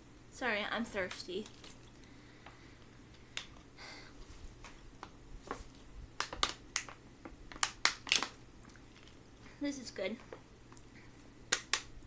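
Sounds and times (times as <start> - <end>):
plastic bottle clicks and crackles: 6.2 - 8.4.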